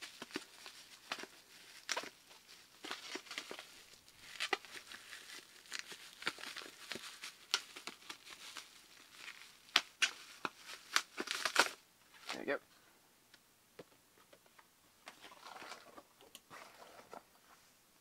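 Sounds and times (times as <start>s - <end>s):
bubble wrap crackling: 0.0s - 12.6s.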